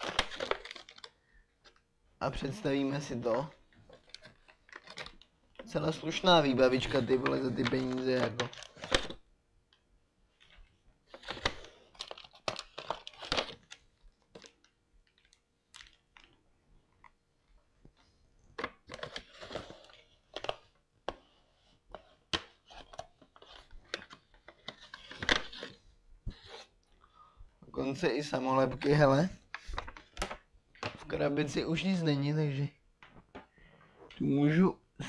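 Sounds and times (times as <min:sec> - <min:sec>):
plastic packaging crinkling: 0:00.0 - 0:01.8, 0:02.4 - 0:09.2, 0:10.4 - 0:16.4, 0:18.6 - 0:20.8, 0:22.6 - 0:26.6.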